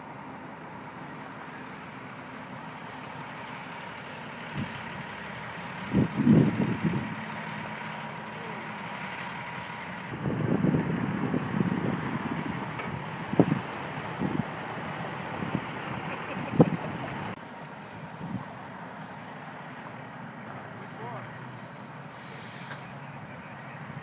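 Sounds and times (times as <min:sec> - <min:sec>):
traffic engine and road noise: 0:00.0 - 0:24.0
wind buffeting microphone: 0:05.8 - 0:07.5, 0:10.1 - 0:17.4, 0:18.1 - 0:18.6.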